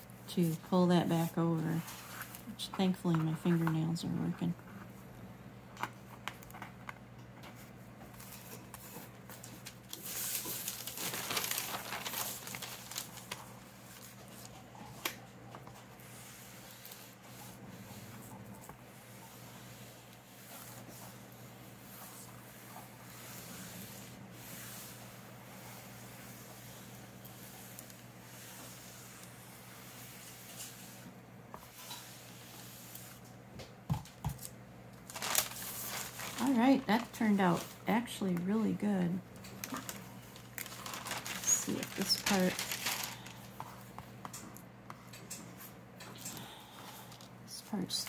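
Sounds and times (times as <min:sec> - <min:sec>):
iron swishing over paper: 0:00.0 - 0:05.0, 0:15.6 - 0:33.3, 0:39.8 - 0:43.8
paper rustling and crinkling: 0:05.8 - 0:18.7, 0:34.4 - 0:38.5, 0:39.4 - 0:43.9.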